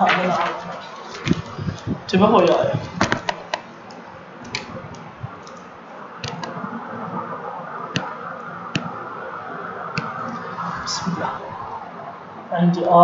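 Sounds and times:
steady background hiss: 0.0 - 13.0
computer mouse clicking: 3.2 - 6.6, 8.7 - 8.9.

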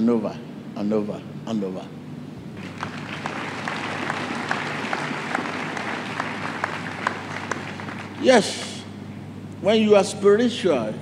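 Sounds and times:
congregation applauding: 2.5 - 8.9.

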